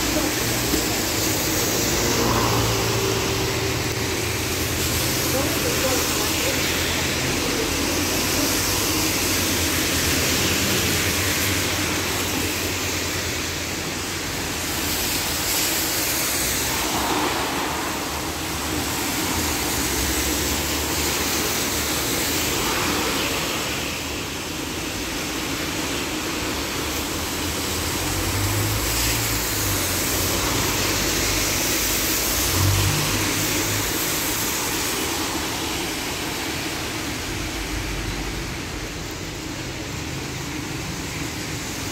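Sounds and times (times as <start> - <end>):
heavy engine droning: 0.0 - 7.9
tyres hissing on wet road: 0.0 - 41.9.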